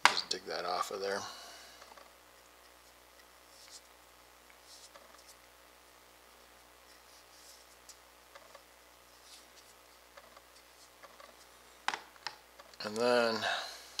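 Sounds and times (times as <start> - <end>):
soft scrapes and ticks: 1.8 - 5.6, 6.7 - 11.7.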